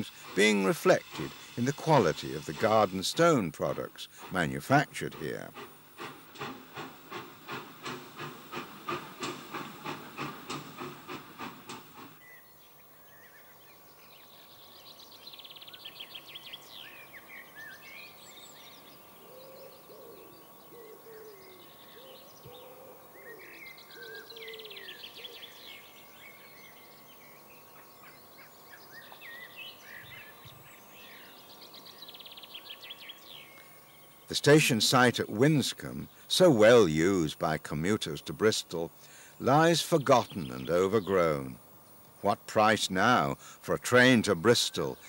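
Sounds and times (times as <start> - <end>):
steam locomotive chuffing: 0.0 - 12.2, 34.3 - 41.5, 42.5 - 45.0.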